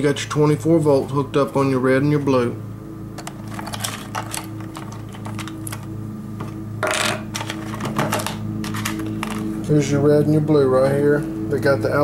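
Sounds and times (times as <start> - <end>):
steady low hum: 0.0 - 12.0
test leads and clips clattering: 3.2 - 9.5.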